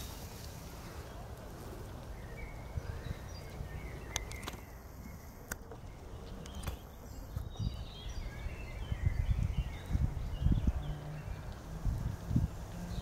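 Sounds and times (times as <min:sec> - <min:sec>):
sheep grazing: 0:00.0 - 0:13.0
small birds chirping: 0:00.0 - 0:13.0
sharp clicks: 0:04.1 - 0:04.8, 0:05.4 - 0:06.9.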